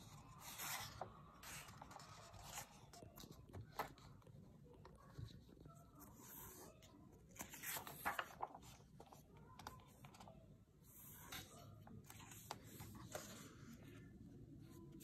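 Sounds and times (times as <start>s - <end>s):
paper pages turning: 7.3s - 10.4s.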